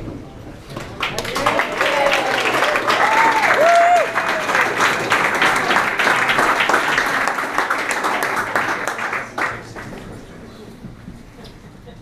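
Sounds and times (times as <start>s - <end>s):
crowd applauding: 0.8s - 10.3s
whooping cheers: 1.3s - 4.6s.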